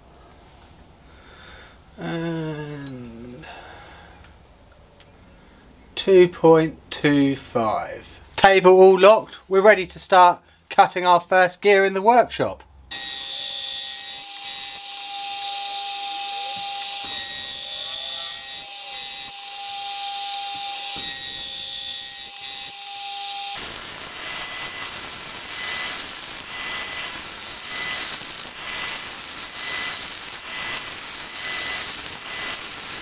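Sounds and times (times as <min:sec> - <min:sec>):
gear cutter rasping: 0:12.9 - 0:33.0
milling machine motor whine: 0:12.9 - 0:33.0.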